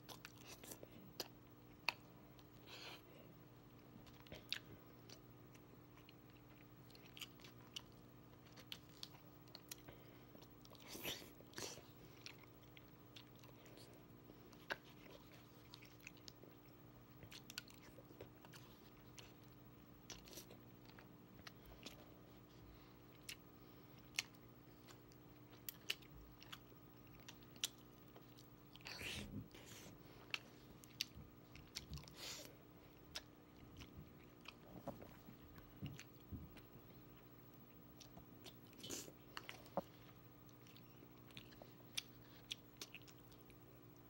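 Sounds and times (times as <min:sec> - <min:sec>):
person chewing close up: 0:00.0 - 0:03.0, 0:03.6 - 0:44.0
faint steady hum: 0:00.0 - 0:44.0.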